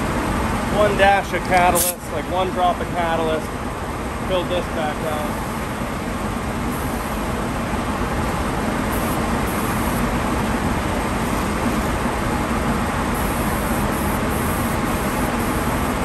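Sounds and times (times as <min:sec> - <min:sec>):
spray gun hissing: 0:08.9 - 0:10.1, 0:13.2 - 0:16.0.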